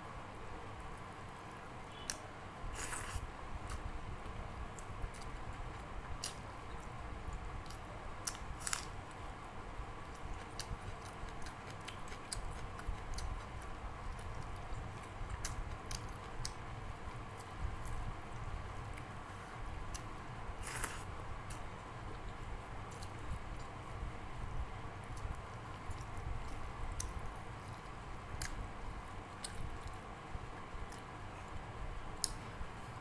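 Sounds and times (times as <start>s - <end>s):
fingers squishing rice: 2.0s - 3.9s, 19.9s - 21.6s
wet chewing: 10.0s - 16.6s.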